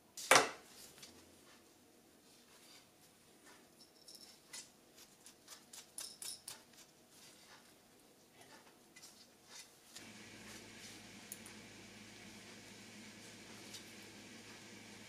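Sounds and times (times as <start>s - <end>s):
low steady hum: 10.0s - 15.0s.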